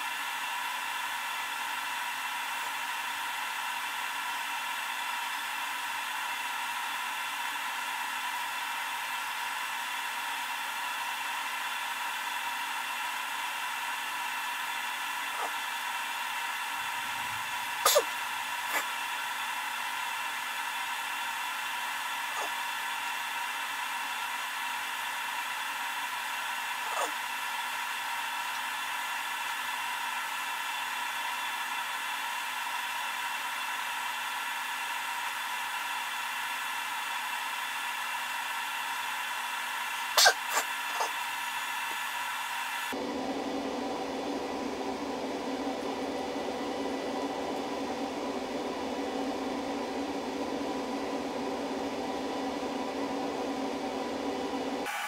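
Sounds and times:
charger fan whine and hum: 0.0 - 55.0.

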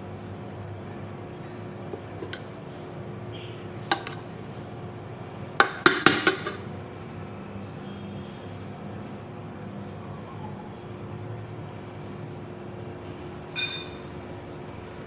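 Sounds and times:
metal spoon clinking on metal pot: 3.9 - 4.2, 5.6 - 6.6.

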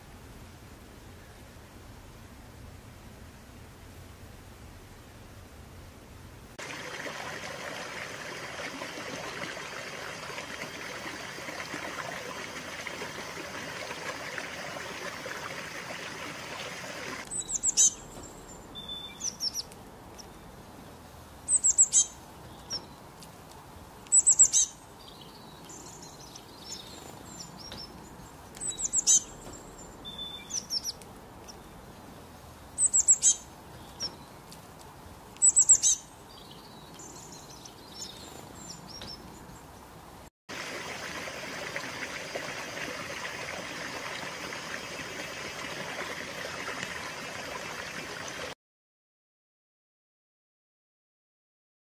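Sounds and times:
stream water splashing: 6.6 - 18.5, 40.5 - 48.6
songbird singing: 6.6 - 23.2, 23.8 - 34.6, 35.3 - 40.0.

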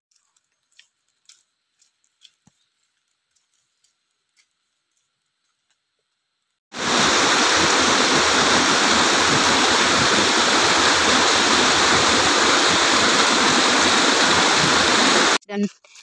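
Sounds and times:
rocky waterfall rushing: 6.7 - 15.4.

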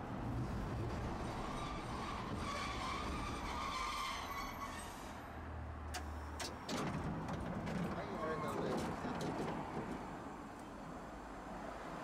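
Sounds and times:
streetcar humming on rails: 0.0 - 6.4.

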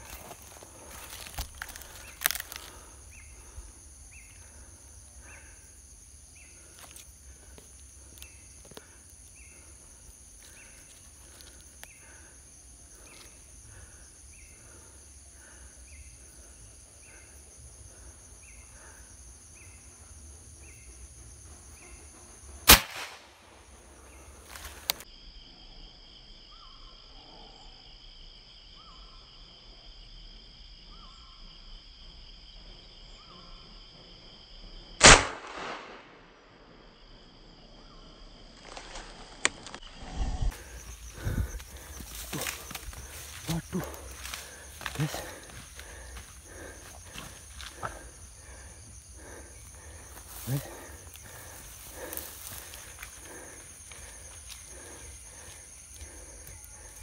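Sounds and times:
insects trilling: 0.0 - 57.0
suppressed rifle shot: 22.7 - 23.3, 35.0 - 36.4.

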